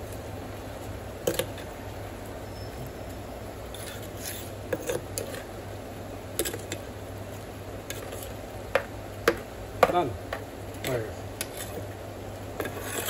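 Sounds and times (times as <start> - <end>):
metal spoon stirring in pot: 1.2 - 1.7, 3.6 - 5.5, 6.4 - 6.9, 7.8 - 9.4, 10.8 - 12.0, 12.6 - 13.0.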